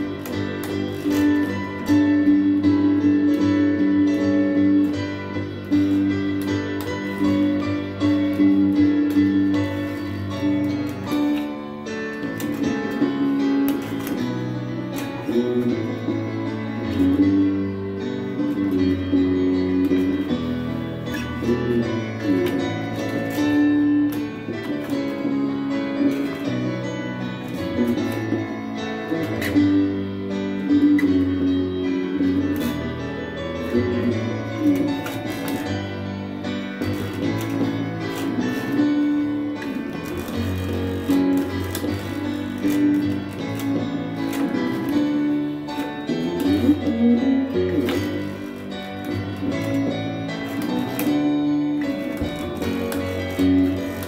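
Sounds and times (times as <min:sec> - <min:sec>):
bass guitar melody: 0:00.0 - 0:54.0
piano accompaniment: 0:00.0 - 0:54.0.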